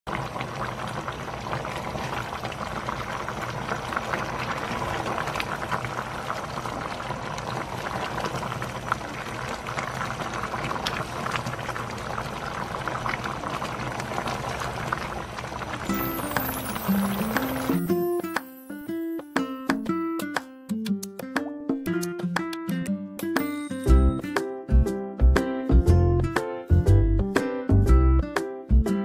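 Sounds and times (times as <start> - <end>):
thick soup bubbling: 0.1 - 18.0.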